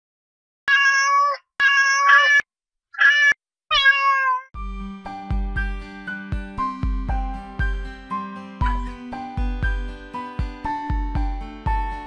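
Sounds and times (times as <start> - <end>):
cat meowing: 0.7 - 4.5
music with a beat: 4.6 - 12.0.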